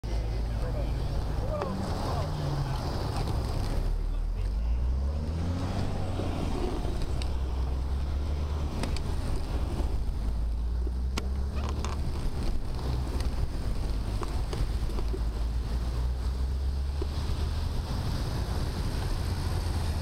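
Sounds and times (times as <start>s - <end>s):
wind buffeting microphone: 4.9s - 20.0s
bike rattling clicks: 8.8s - 9.5s.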